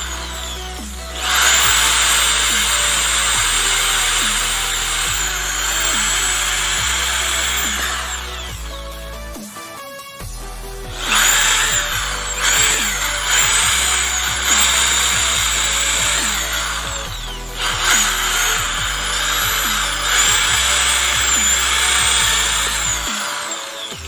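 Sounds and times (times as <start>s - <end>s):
drill boring into wood: 0.0s - 24.0s.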